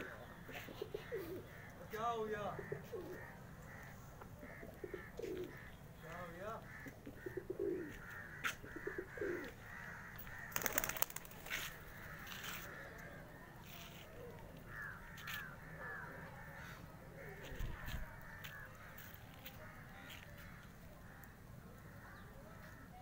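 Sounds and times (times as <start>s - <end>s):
pigeons cooing: 0.0s - 1.9s, 2.5s - 5.7s, 6.8s - 11.6s
birds harsh calls: 0.0s - 23.0s.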